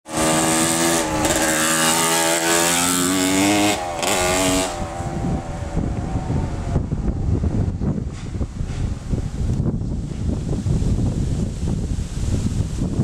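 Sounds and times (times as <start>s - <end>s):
dirt bike engine revving: 0.1s - 8.2s
wind rumble on microphone: 0.1s - 13.0s.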